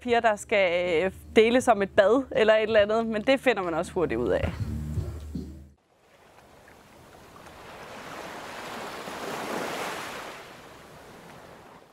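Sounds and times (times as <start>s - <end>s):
ocean wave washing in: 7.3s - 11.8s.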